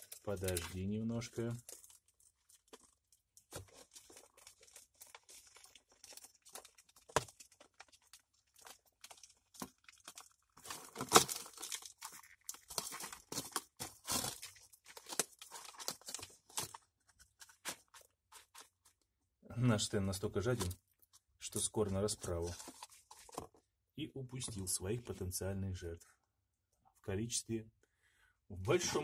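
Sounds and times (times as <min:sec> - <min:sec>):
plastic box crackling and clicking: 0:00.0 - 0:18.7.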